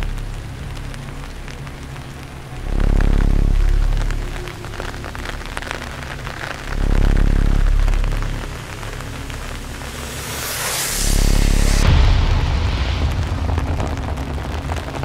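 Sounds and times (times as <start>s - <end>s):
deep low drone: 0.0s - 15.0s
rain on wet road: 0.0s - 15.0s
rising whoosh: 9.0s - 15.0s.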